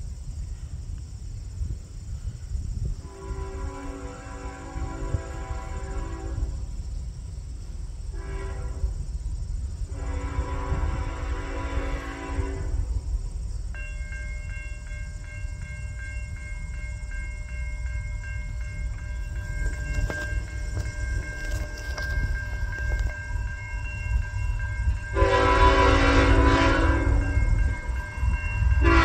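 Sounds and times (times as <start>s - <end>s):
train rumble: 0.0s - 29.0s
locomotive horn: 3.0s - 6.7s, 8.1s - 9.1s, 9.9s - 13.0s, 25.1s - 29.0s
high pulsing ringing: 12.8s - 29.0s.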